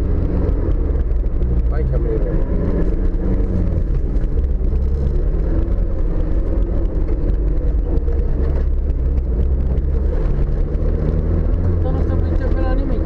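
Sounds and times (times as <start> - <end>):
off-road vehicle engine running: 0.0 - 13.0.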